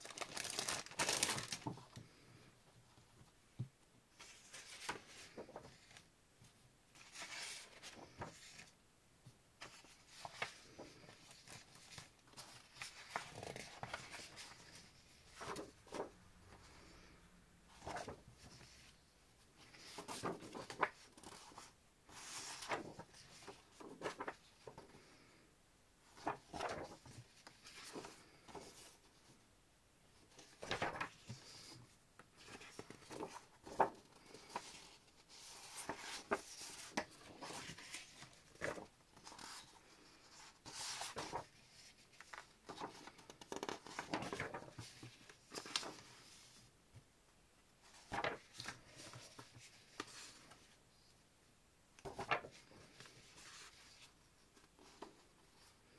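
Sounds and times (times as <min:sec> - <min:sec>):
paper rustling and sliding: 0:04.1 - 0:06.1, 0:07.0 - 0:08.7, 0:09.6 - 0:17.1, 0:17.7 - 0:19.0, 0:19.6 - 0:25.2, 0:26.1 - 0:29.2, 0:30.3 - 0:46.6, 0:47.8 - 0:50.7, 0:52.0 - 0:54.1.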